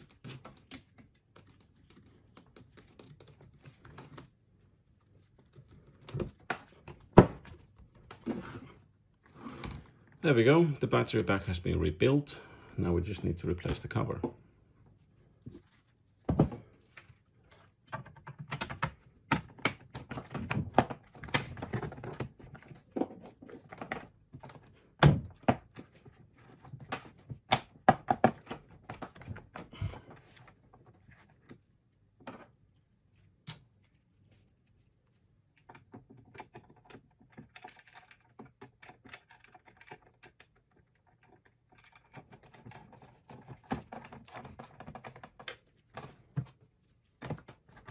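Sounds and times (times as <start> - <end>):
plastic cover knocks and clicks: 17.9 - 25.8, 26.8 - 29.8.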